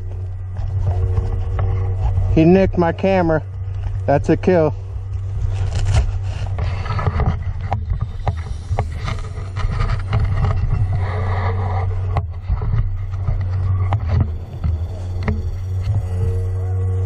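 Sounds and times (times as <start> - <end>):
low microphone rumble: 0.0 - 17.0
twigs snapping: 5.1 - 10.6.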